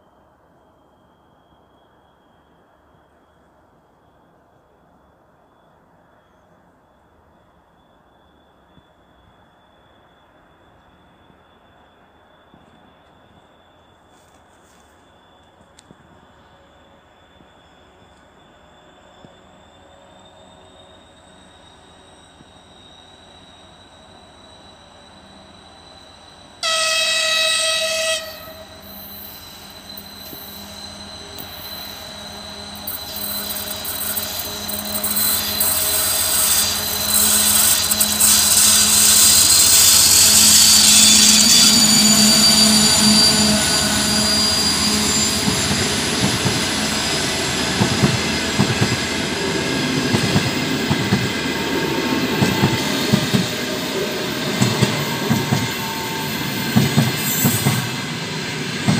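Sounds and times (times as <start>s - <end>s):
diesel locomotive engine passing: 13.1s - 58.9s
locomotive horn blast: 26.6s - 28.9s
train wheels clicking over rail joints: 29.4s - 42.2s, 45.0s - 58.9s.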